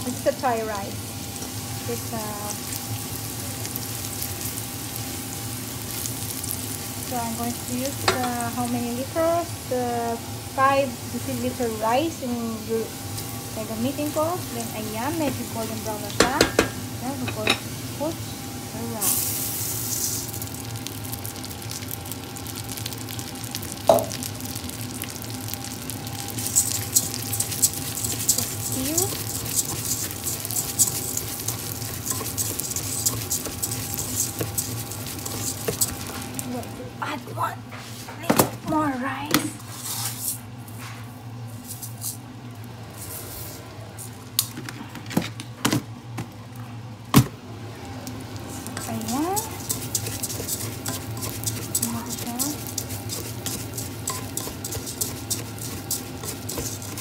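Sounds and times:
rice sizzling in hot oil: 0:00.0 - 0:37.0, 0:47.6 - 0:57.0
steady low hum: 0:00.0 - 0:57.0
wooden spoon stirring: 0:26.3 - 0:36.5, 0:48.4 - 0:57.0.

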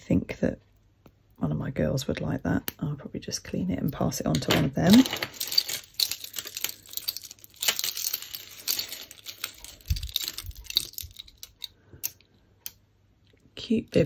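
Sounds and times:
jewellery clinking and rattling: 0:03.9 - 0:12.8.

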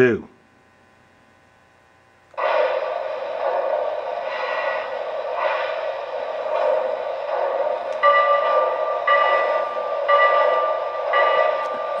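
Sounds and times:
hiss of simulated steam: 0:02.4 - 0:12.0.

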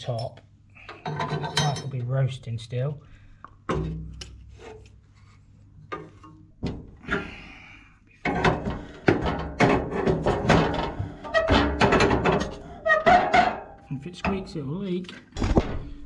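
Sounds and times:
spanner scraping and rubbing: 0:08.3 - 0:13.8.

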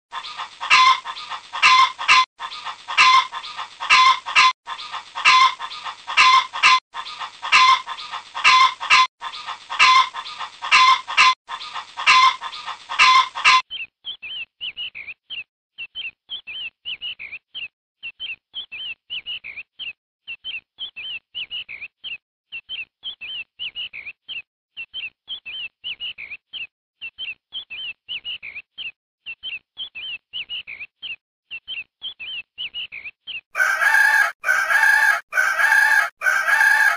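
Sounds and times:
chickens clucking: 0:00.1 - 0:13.6, 0:33.6 - 0:36.9
chicks peeping: 0:00.1 - 0:13.7, 0:33.6 - 0:36.9.

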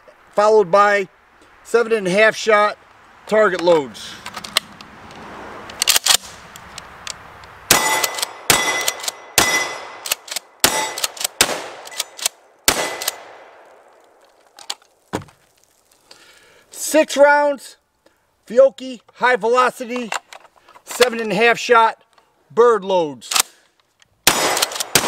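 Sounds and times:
shotgun pump action: 0:05.7 - 0:06.4, 0:07.7 - 0:13.4, 0:23.3 - 0:23.6, 0:24.3 - 0:25.0
shotgun shots: 0:07.7 - 0:13.7, 0:24.2 - 0:25.0.

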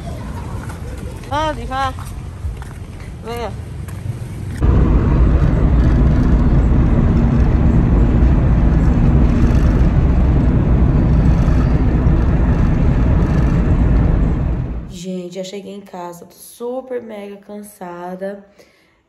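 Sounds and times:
car cabin road and engine rumble: 0:00.0 - 0:14.9.

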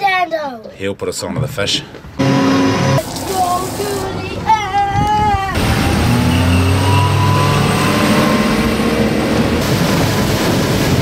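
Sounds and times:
water spray rushing: 0:03.0 - 0:04.3
wind along the hull: 0:04.6 - 0:05.6.

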